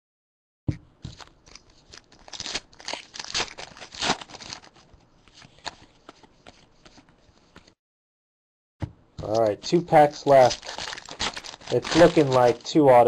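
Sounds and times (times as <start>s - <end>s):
cards being shuffled by hand: 3.3s - 7.8s, 10.2s - 13.0s.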